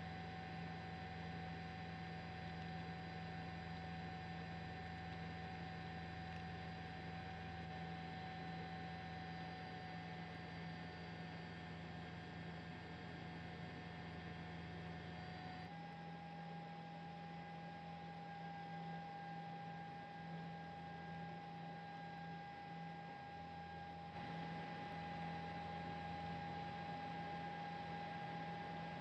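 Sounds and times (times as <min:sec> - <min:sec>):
faint steady tones: 0:17.0 - 0:29.0.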